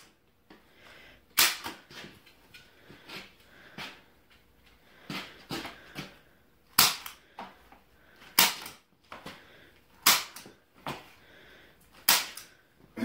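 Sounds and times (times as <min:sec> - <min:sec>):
staple gun snapping: 0:12.0 - 0:12.5.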